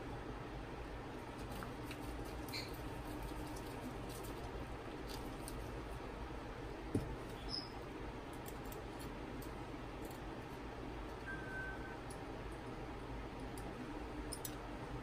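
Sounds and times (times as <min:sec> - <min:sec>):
screwdriver ticks and squeaks: 0:02.3 - 0:02.8, 0:07.4 - 0:07.7.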